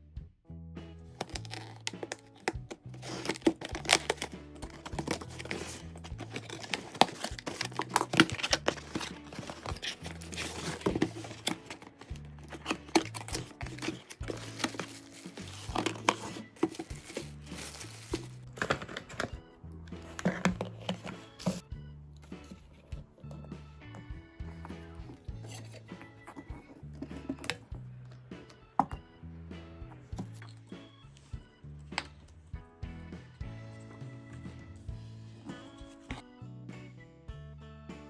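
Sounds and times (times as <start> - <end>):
background music with bass: 0.0 - 38.0
cardboard packaging crinkling and tearing: 1.2 - 19.3.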